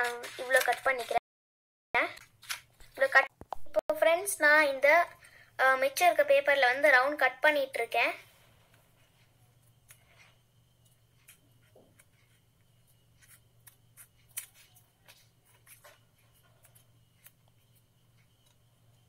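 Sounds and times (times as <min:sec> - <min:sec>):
scissors snipping paper: 0:00.0 - 0:01.2, 0:13.2 - 0:17.6.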